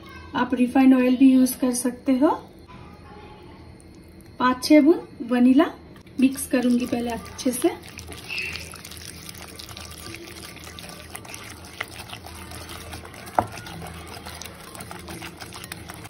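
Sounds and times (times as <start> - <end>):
wet batter squelching: 6.0 - 16.0
whisk clicking against bowl: 9.2 - 16.0.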